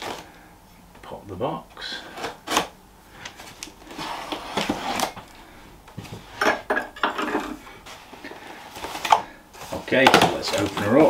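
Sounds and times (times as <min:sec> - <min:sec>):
cardboard box rustling and scraping: 0:03.4 - 0:05.3, 0:07.8 - 0:11.0.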